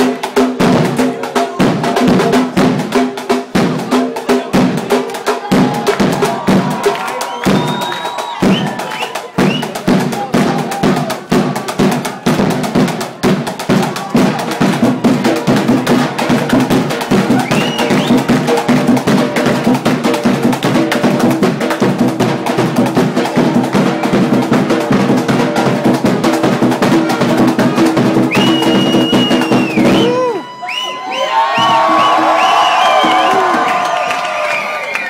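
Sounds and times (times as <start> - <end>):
percussion band drumming: 0.0 - 35.0.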